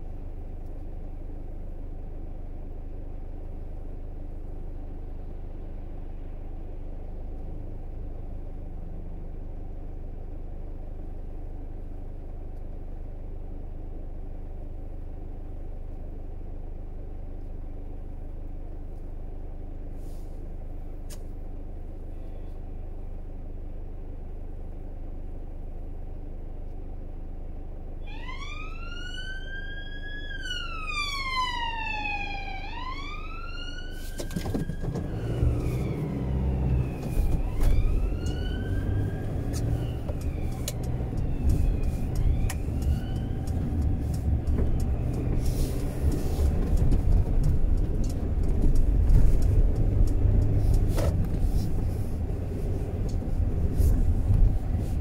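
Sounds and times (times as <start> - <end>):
car road and engine rumble: 0.0 - 55.0
emergency siren wailing: 28.0 - 50.6.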